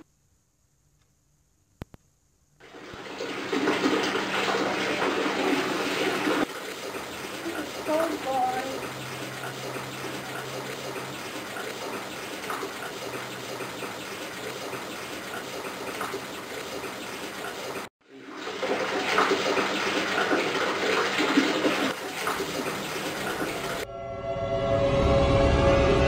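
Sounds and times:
water running into bathtub: 0:02.6 - 0:23.9
music: 0:23.8 - 0:26.0.

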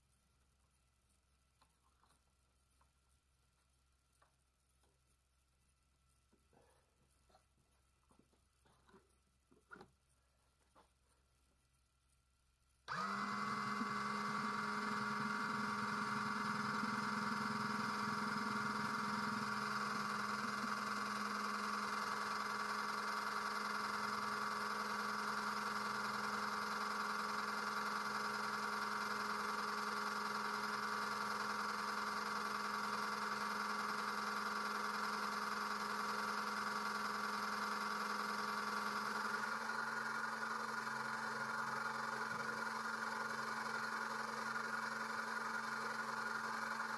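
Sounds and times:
electric pump motor humming: 0:12.9 - 0:46.9.

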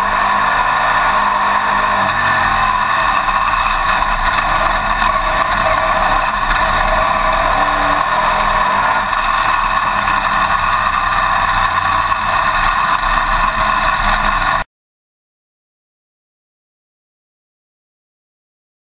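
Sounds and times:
race car engine running hard: 0:00.0 - 0:14.6.

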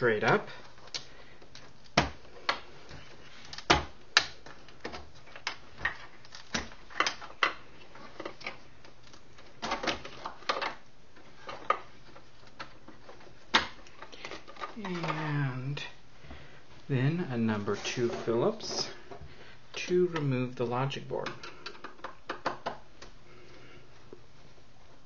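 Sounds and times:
parts and tools handled: 0:00.0 - 0:15.5.

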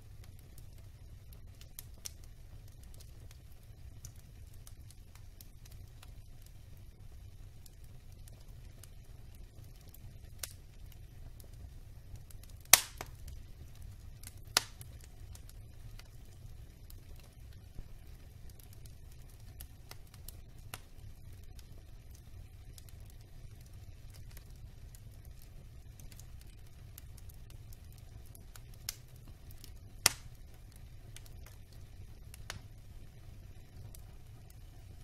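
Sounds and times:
logs crackling in fireplace: 0:00.0 - 0:35.0
low fire rumble: 0:00.0 - 0:35.0
loud wood pops: 0:12.8 - 0:13.1.

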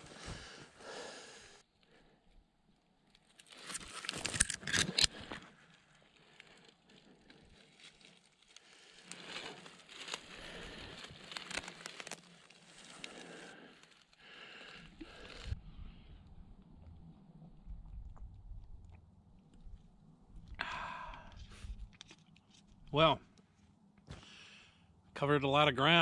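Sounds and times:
footsteps through dry leaves: 0:07.7 - 0:13.5.

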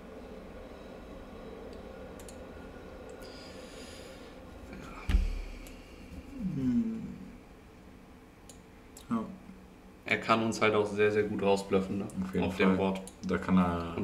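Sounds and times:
faint mouse clicks: 0:01.7 - 0:02.4, 0:08.5 - 0:09.1
dull thump: 0:05.0 - 0:05.5
man groaning: 0:06.4 - 0:07.3.

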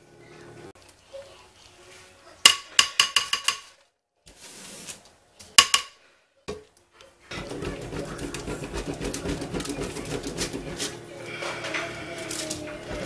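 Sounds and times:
soap being grated: 0:07.3 - 0:11.1.

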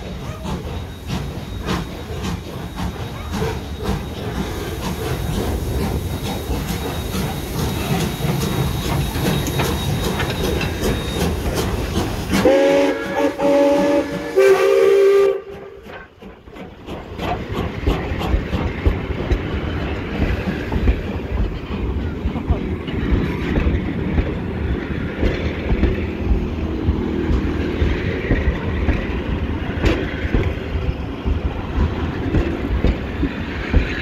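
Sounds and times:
steam locomotive exhaust beats: 0:00.0 - 0:34.0
train wheels clicking over rail joints: 0:00.0 - 0:34.0
steam whistle blasts: 0:12.4 - 0:15.8.

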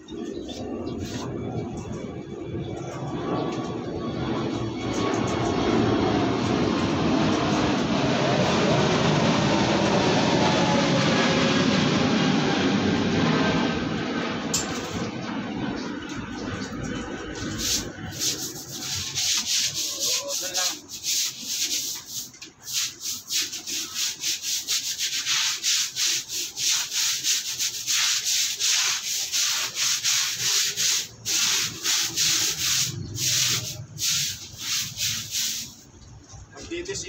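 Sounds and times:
stiff brush scrubbing concrete: 0:00.3 - 0:01.9, 0:16.4 - 0:35.9.

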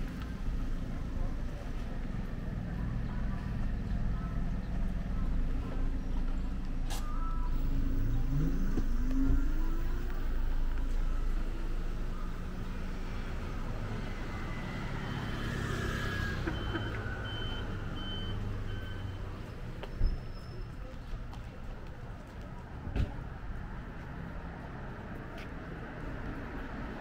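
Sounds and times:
street traffic engines: 0:00.0 - 0:27.0
vehicle pulling away: 0:07.0 - 0:20.4.

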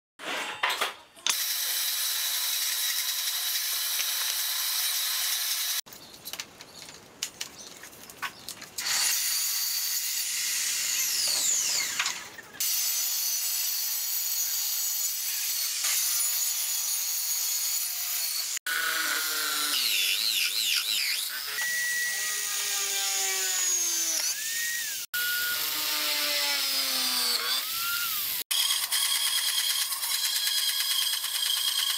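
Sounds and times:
table saw cutting wood: 0:01.3 - 0:05.8, 0:08.8 - 0:31.9
drill press boring wood: 0:10.4 - 0:12.3.

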